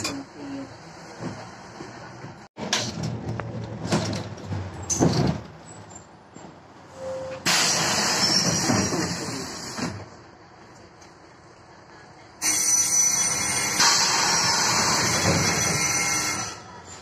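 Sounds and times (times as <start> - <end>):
bus rattling: 0.0 - 17.0
air brakes hissing: 6.9 - 10.0.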